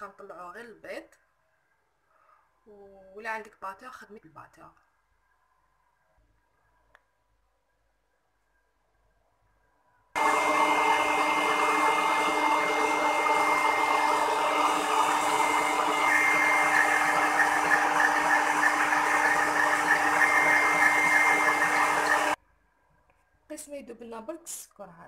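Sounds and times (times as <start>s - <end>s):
stand mixer motor whine: 10.2s - 22.4s
whisk beating eggs in metal bowl: 10.2s - 22.4s.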